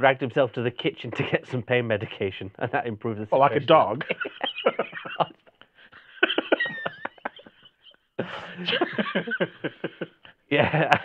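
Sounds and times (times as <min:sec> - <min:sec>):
men laughing: 0:03.4 - 0:11.0.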